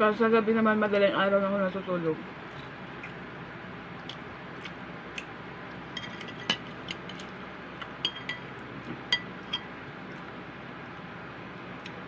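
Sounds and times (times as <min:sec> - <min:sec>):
metal spoon clinking on plate: 0:06.0 - 0:07.3, 0:08.0 - 0:08.5.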